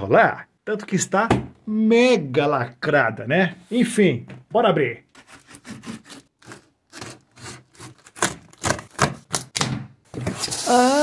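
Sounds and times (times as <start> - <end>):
packing tape tearing: 5.4 - 9.6.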